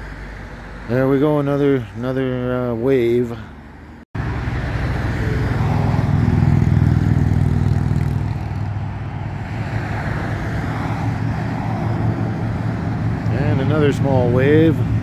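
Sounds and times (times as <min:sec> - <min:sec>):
motorcycles riding past: 0:04.2 - 0:15.0.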